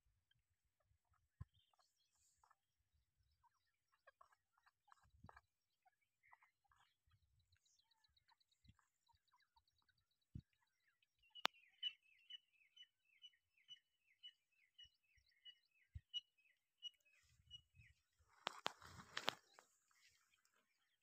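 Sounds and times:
francolin calling: 0:11.2 - 0:17.9.

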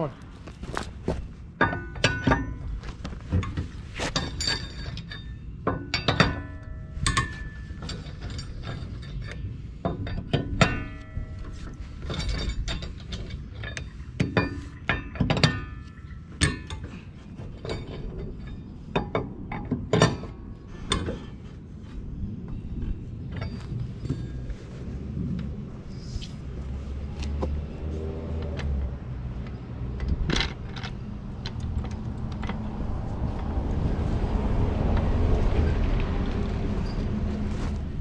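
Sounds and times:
metal clinks: 0:03.4 - 0:21.3.

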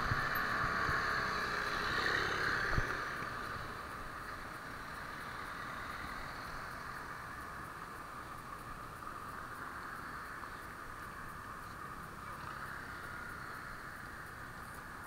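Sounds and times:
muffled street traffic: 0:00.0 - 0:15.0.

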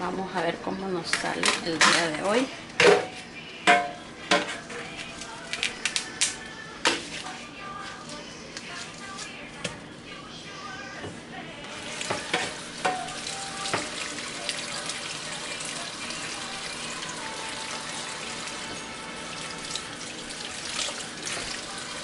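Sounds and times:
tap water running into sink: 0:11.8 - 0:22.0.

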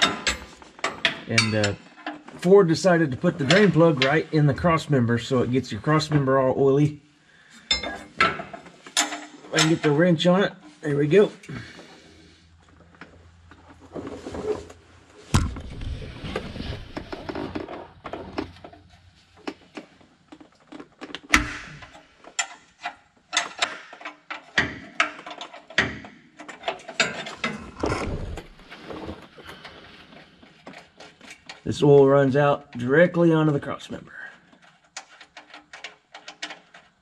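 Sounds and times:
wrench clicking and clanking: 0:21.1 - 0:27.5.

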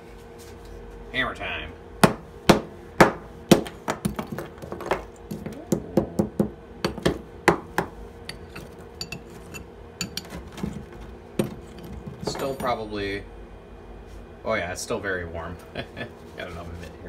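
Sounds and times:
hammer blows on plaster mold: 0:02.0 - 0:04.4.

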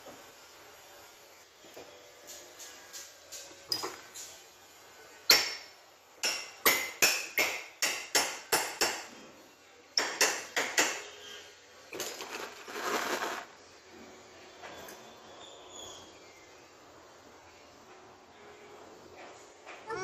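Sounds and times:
hammer striking metal: 0:05.3 - 0:09.1
metal parts scraping and rattling: 0:12.0 - 0:13.5.

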